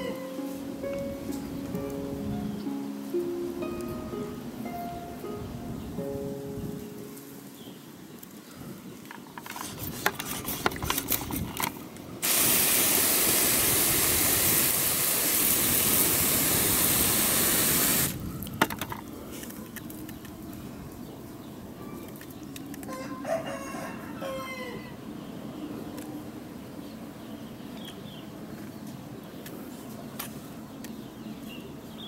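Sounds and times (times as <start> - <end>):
chicken calling: 0.0 - 0.7
clicks and rustling from handling: 9.0 - 12.0
hose nozzle spraying water: 12.2 - 18.2.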